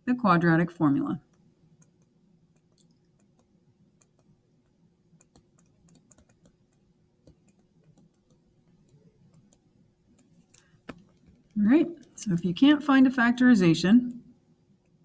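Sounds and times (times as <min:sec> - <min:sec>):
faint steady hum: 0:00.0 - 0:15.0
stylus tapping on tablet screen: 0:01.3 - 0:12.1.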